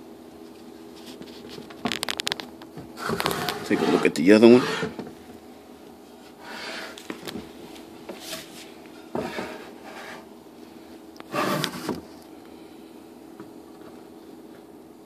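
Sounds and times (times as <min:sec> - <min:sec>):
bronze vessel scraping on paper: 0:03.0 - 0:05.0, 0:06.4 - 0:07.1, 0:09.2 - 0:10.3, 0:11.3 - 0:12.0.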